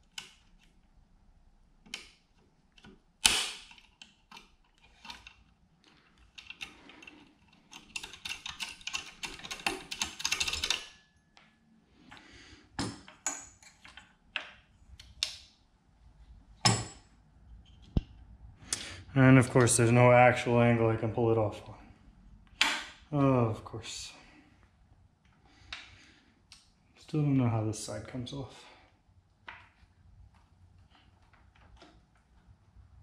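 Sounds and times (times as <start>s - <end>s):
metal clicking and scraping: 1.9s - 11.0s.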